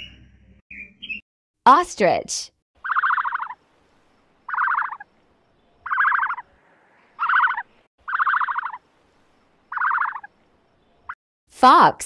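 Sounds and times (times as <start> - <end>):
rasping pulsed animal call: 2.8 - 3.6, 4.4 - 5.1, 5.8 - 6.6, 7.2 - 8.8, 9.7 - 10.3.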